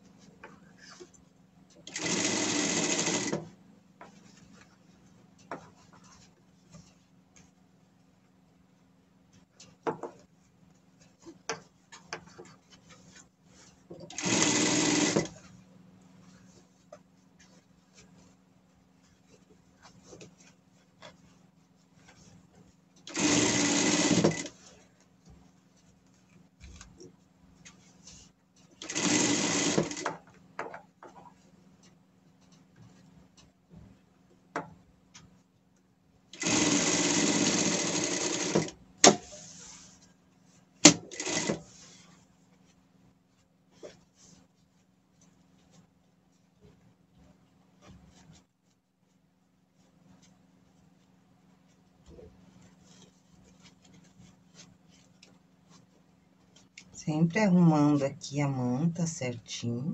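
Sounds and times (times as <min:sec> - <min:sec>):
sewing machine stitching: 0:01.8 - 0:03.5, 0:14.0 - 0:15.4, 0:23.1 - 0:24.6, 0:28.8 - 0:30.2, 0:36.3 - 0:39.4, 0:40.8 - 0:41.8.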